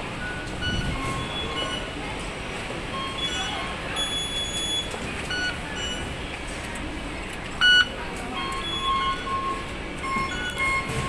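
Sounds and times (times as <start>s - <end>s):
station hubbub: 0.0s - 11.0s
card reader short beeps: 0.2s - 2.0s, 3.0s - 6.1s, 7.6s - 11.0s.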